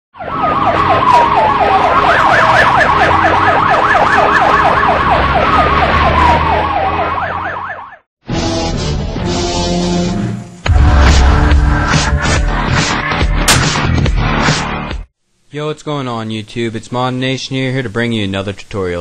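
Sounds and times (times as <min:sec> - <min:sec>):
emergency siren yelping: 0:00.2 - 0:08.1
siren wail: 0:00.2 - 0:08.1.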